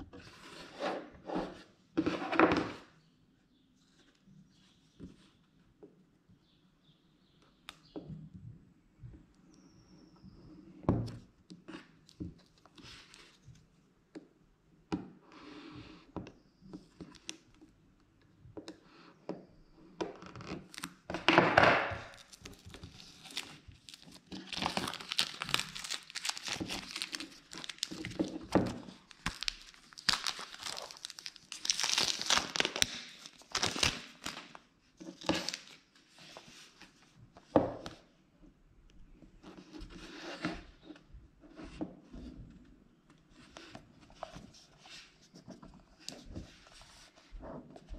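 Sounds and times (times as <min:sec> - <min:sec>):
shrink-wrap tearing and crinkling: 0:22.1 - 0:34.6, 0:35.2 - 0:35.8.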